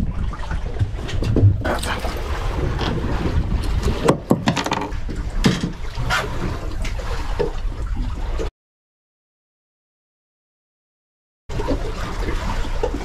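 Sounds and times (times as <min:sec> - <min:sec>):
wind rumbling on microphone: 0:00.0 - 0:08.5.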